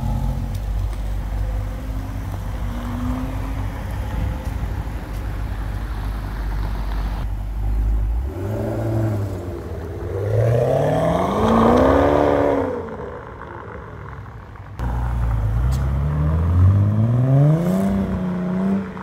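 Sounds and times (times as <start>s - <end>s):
car engine revving and accelerating: 1.3s - 4.6s, 7.7s - 13.1s, 14.8s - 19.0s.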